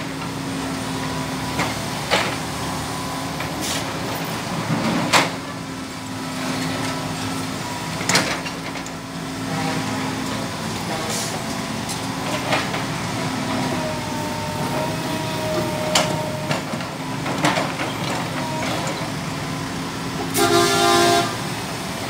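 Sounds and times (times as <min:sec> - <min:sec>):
excavator engine running: 0:00.0 - 0:22.0
vehicle horn honking: 0:20.3 - 0:21.6.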